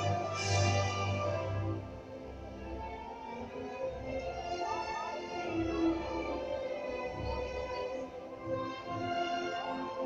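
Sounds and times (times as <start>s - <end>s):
instrumental ballet music: 0.0s - 10.0s.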